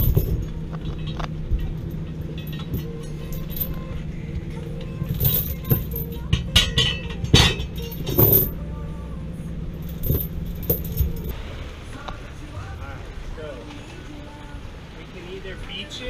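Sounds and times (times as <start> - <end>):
anchor chain clanking: 0.0 - 8.9, 9.6 - 11.3
steady low hum: 0.0 - 15.2.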